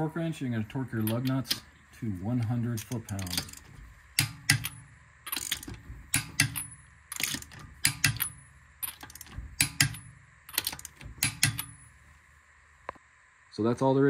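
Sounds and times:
ratchet wrench clicking: 1.0s - 1.7s, 2.8s - 11.8s.

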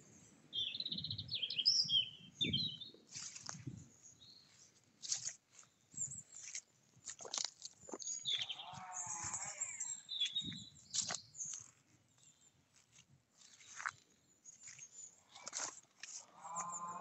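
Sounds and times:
small birds chirping: 0.0s - 17.0s
wavering animal bleat: 8.5s - 10.0s, 16.2s - 17.0s.

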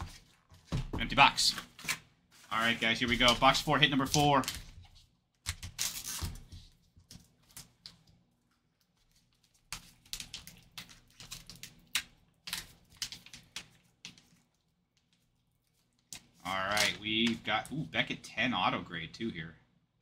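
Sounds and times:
card pack crinkling: 1.2s - 4.8s, 5.5s - 6.5s, 7.2s - 14.4s, 16.0s - 17.6s.

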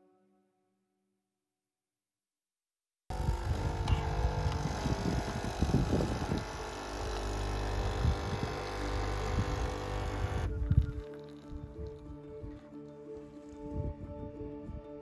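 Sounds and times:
coffee machine pump buzzing: 3.1s - 10.8s
coffee machine spluttering: 3.1s - 11.6s.

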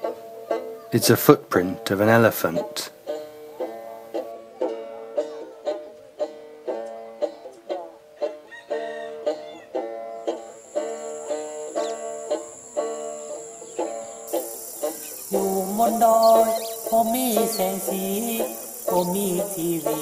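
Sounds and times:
plucked string melody: 0.0s - 20.0s.

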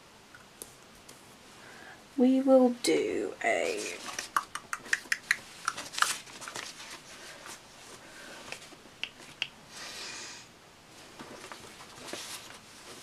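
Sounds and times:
paper rustling and tapping: 4.0s - 7.0s.

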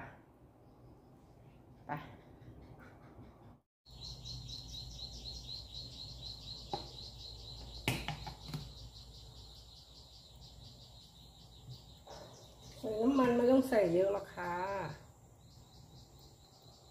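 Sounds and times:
insect chirping: 3.9s - 16.9s.

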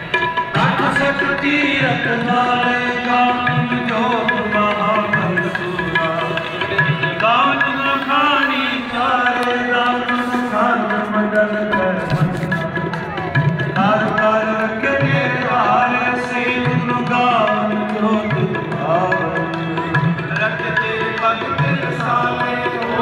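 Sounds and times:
harmonium: 0.0s - 23.0s
tabla: 0.0s - 23.0s
person singing a hymn: 13.8s - 23.0s.

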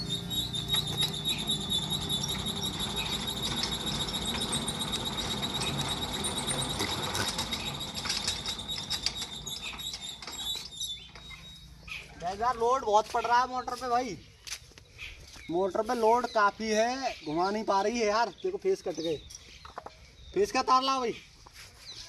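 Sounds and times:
electric motor squealing and humming: 0.0s - 11.8s.

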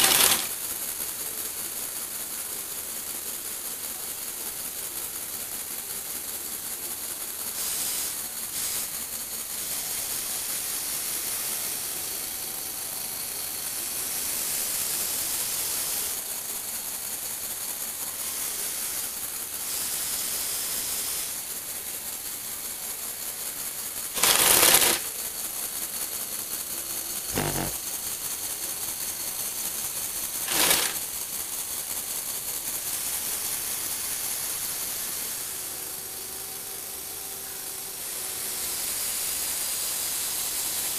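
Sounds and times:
small electric motors whirring: 0.0s - 0.5s, 24.1s - 25.4s, 26.8s - 27.8s, 30.4s - 31.1s.

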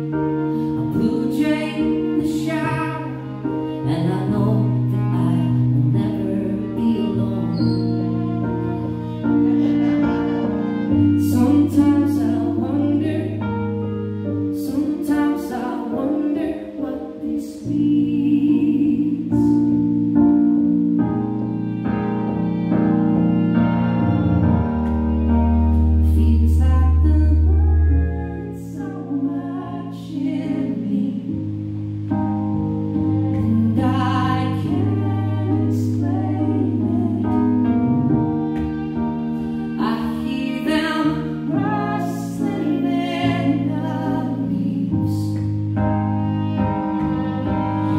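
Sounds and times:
keyboard chords: 0.0s - 47.9s
violin melody: 0.0s - 47.9s
deep held bass note: 37.7s - 38.4s.

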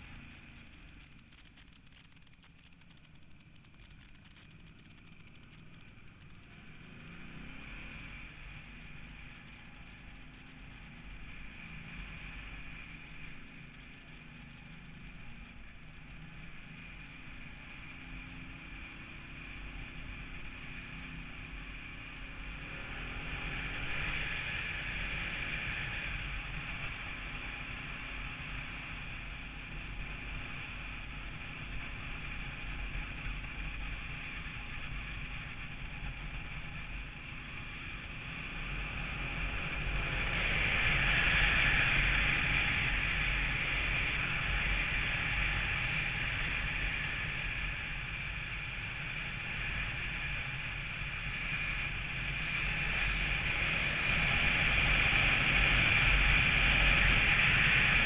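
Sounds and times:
motorcycle engine accelerating: 0.0s - 58.0s
wind and road noise: 0.0s - 58.0s.

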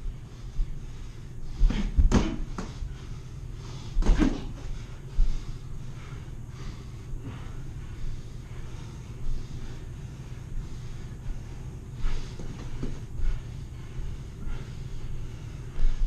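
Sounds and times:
boxing gloves thudding: 1.7s - 2.7s.

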